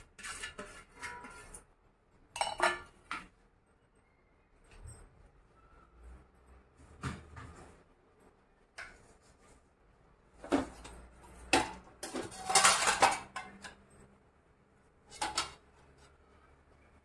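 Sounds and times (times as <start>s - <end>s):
utensils and dishes clattering: 0.0s - 3.4s, 10.4s - 14.2s, 15.0s - 16.0s.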